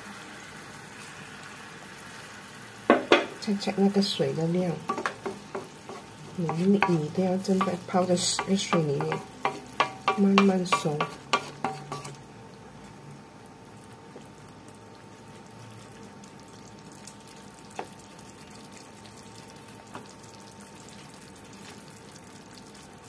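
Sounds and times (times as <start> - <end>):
rice simmering with bubbling hiss: 0.0 - 23.0
wooden spatula scraping a pan: 4.9 - 12.2.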